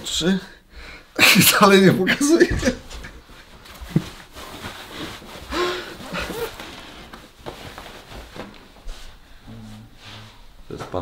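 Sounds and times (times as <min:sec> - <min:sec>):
cloth rustling: 0:02.2 - 0:10.6.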